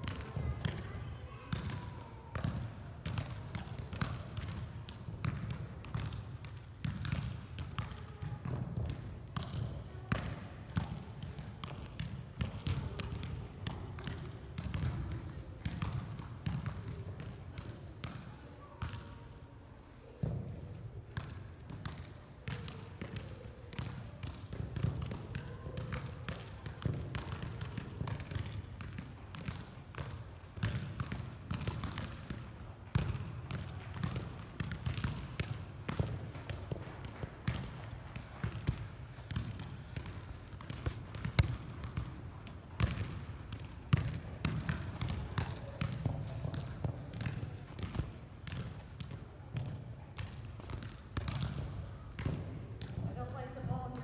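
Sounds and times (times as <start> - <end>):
soccer ball thumps: 21.2 - 54.0.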